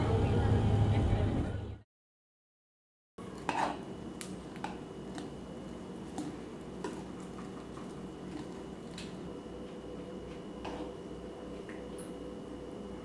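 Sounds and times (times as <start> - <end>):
steady low hum: 3.2 - 13.0.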